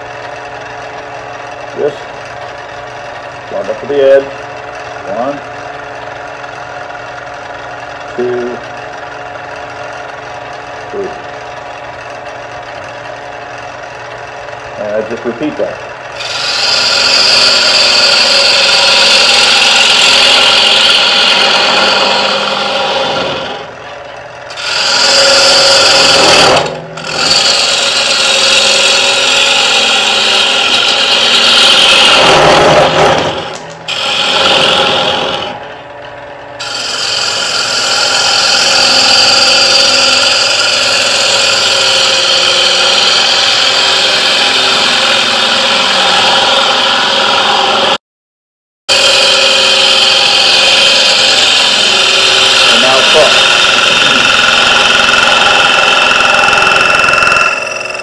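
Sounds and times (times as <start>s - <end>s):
wood shavings hissing off lathe: 14.8s - 23.7s, 24.5s - 35.6s, 36.6s - 48.0s, 48.9s - 58.0s.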